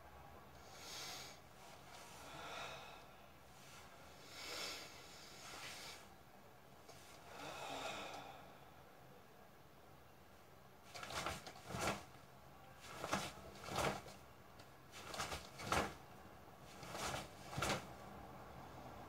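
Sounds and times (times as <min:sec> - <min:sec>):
man breathing forcefully: 0:02.1 - 0:03.2, 0:07.2 - 0:08.6.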